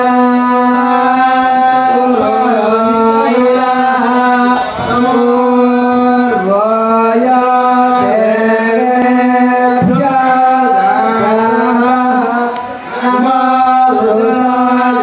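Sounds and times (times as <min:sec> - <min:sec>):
man chanting: 0:00.0 - 0:15.0.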